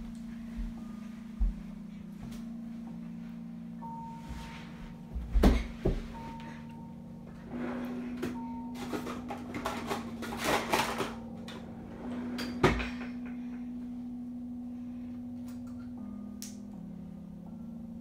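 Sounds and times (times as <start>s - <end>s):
low steady hum: 0.0s - 18.0s
clattering and rustling in drawer: 7.6s - 11.2s.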